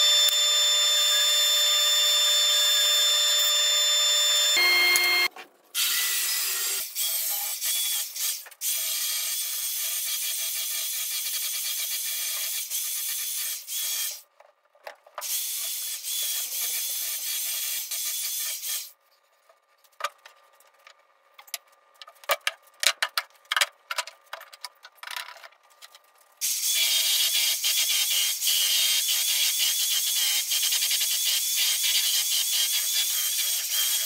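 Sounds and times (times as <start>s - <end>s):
belt sander whining: 0.0s - 5.3s
scattered clicks and knocks: 20.0s - 26.0s.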